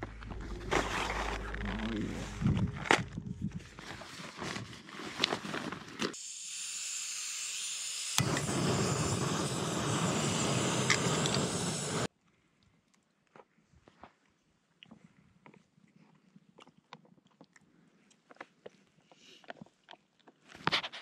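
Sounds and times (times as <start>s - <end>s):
gas hissing: 6.2s - 12.1s
gas burner flame rushing: 8.0s - 12.1s.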